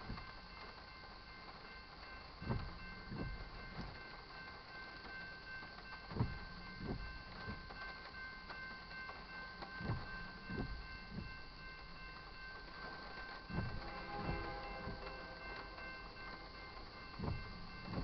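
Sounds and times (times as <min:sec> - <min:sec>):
railroad crossing bell ringing: 0:00.0 - 0:18.0
dull low thumps: 0:06.1 - 0:12.8, 0:13.4 - 0:18.0.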